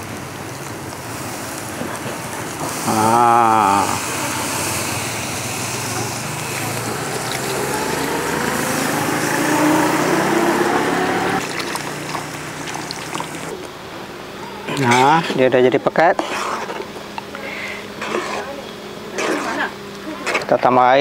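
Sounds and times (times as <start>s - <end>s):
food hissing in a wok: 0.0s - 13.5s
milk pouring into a wok: 6.8s - 8.2s, 11.4s - 13.5s.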